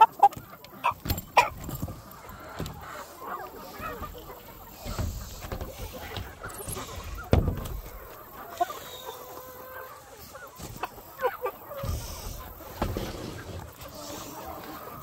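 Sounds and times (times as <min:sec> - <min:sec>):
chickens clucking: 0:00.0 - 0:15.0
heavy thump: 0:04.8 - 0:08.0.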